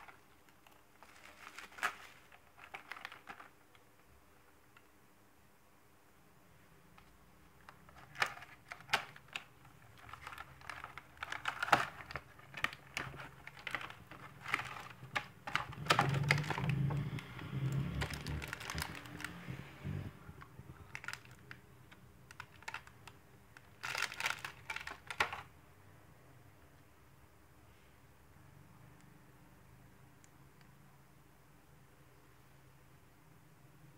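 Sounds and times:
box and plastic tray handled: 0.0s - 3.6s, 7.7s - 19.4s, 23.8s - 25.5s.

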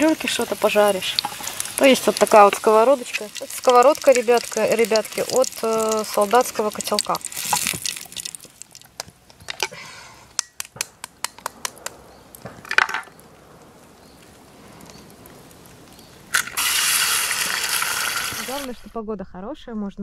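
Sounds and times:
loud steady hiss: 0.0s - 7.7s, 13.3s - 18.9s
meat frying with pops and crackles: 0.0s - 18.8s.

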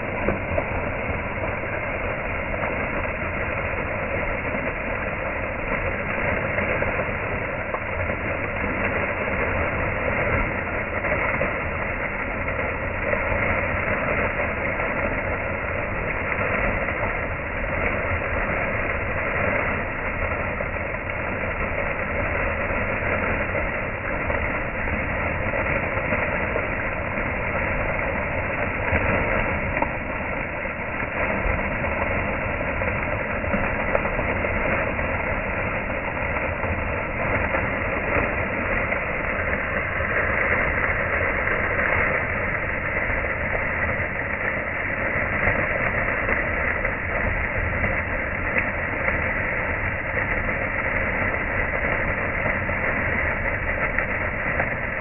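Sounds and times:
fountain water splashing: 0.0s - 55.0s.

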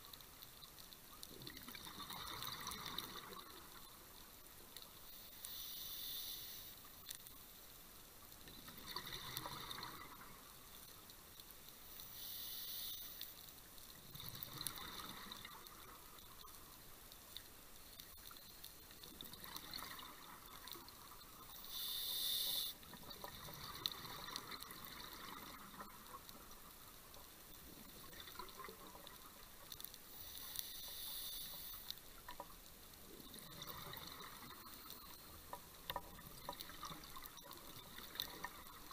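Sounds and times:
exhaled air bubbling: 1.3s - 3.9s, 8.5s - 10.6s, 14.1s - 16.2s, 19.1s - 26.6s, 27.8s - 29.5s, 33.1s - 35.1s
regulator breath hiss: 5.4s - 6.8s, 12.1s - 13.3s, 21.6s - 22.8s, 30.1s - 31.9s.

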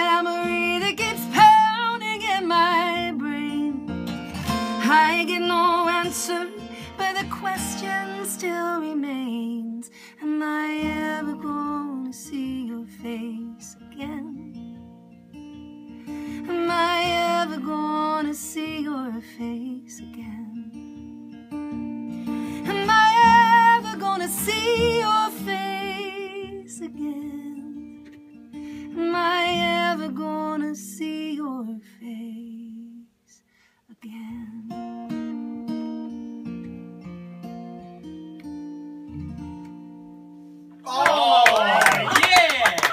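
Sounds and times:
woman singing with vibrato: 0.0s - 3.9s, 4.7s - 14.5s, 16.4s - 20.6s, 22.6s - 27.8s, 28.9s - 33.1s
strummed acoustic guitar: 0.0s - 31.0s, 34.7s - 40.8s.

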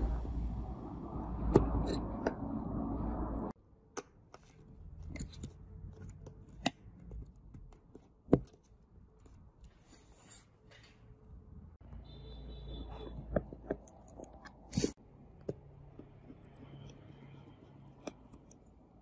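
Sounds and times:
low rumble: 0.0s - 3.6s.

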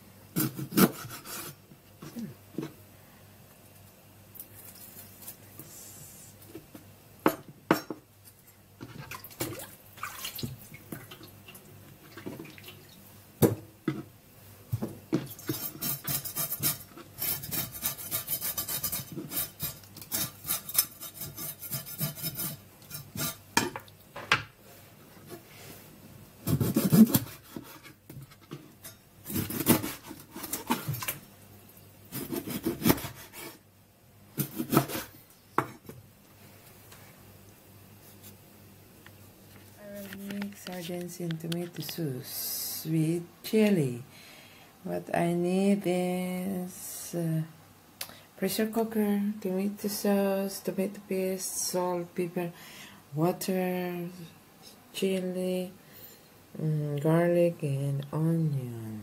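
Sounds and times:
knife scraping fish: 0.4s - 1.6s, 15.4s - 23.4s, 26.5s - 28.0s, 29.3s - 31.1s, 32.1s - 33.6s.

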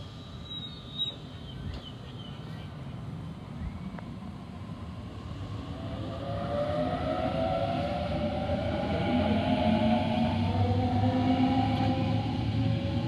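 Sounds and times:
train wheels rumbling on rails: 0.0s - 13.0s
electric train motor whine: 5.1s - 13.0s.

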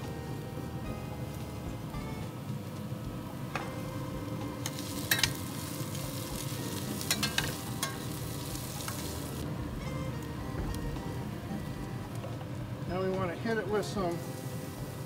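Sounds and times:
onions sizzling in pan: 0.0s - 15.0s
metal tongs clinking on pan: 4.6s - 9.2s.

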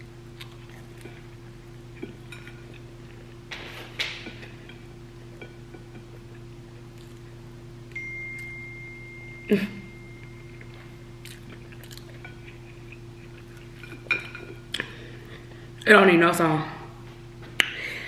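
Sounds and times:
person chewing food: 0.0s - 7.5s, 10.2s - 15.8s
steady low hum: 0.0s - 18.0s
high ringing tone: 7.9s - 11.2s.

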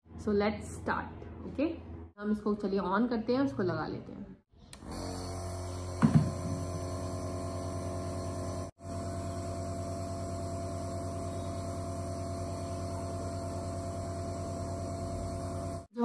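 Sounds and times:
nebulizer compressor humming: 4.7s - 16.0s.

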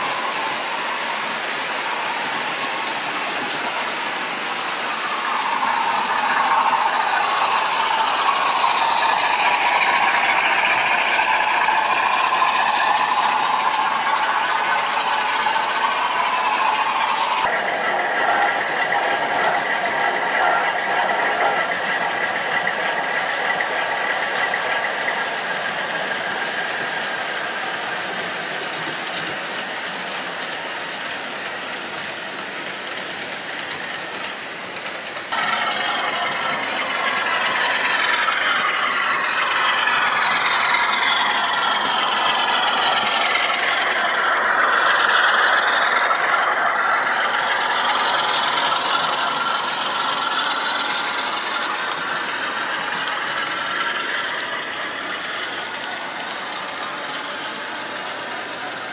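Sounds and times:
model train engine tones: 0.0s - 58.9s
model train running hum: 0.0s - 58.9s.

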